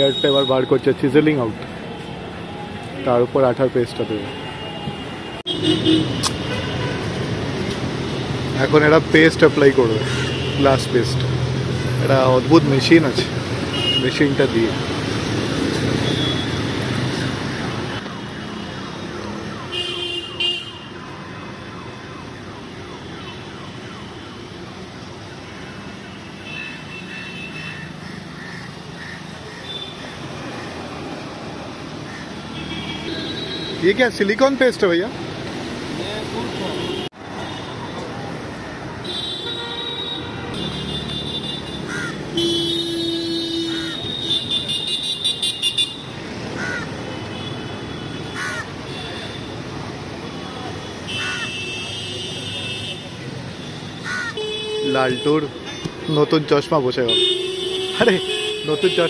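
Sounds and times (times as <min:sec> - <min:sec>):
street traffic din: 0:00.0 - 0:59.0
crows cawing: 0:10.0 - 0:10.5, 0:26.4 - 0:30.9, 0:32.0 - 0:32.6, 0:41.8 - 0:42.4, 0:43.6 - 0:44.0, 0:46.2 - 0:47.0, 0:48.3 - 0:49.0, 0:51.1 - 0:51.6, 0:54.0 - 0:54.5.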